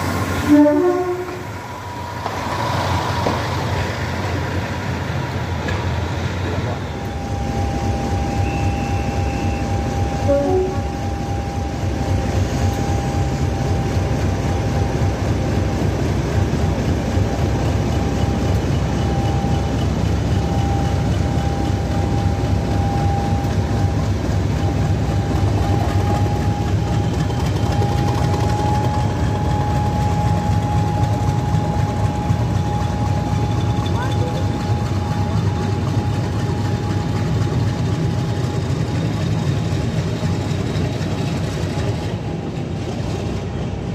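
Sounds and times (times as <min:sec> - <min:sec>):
diesel locomotive engine rumble: 0:00.0 - 0:43.9.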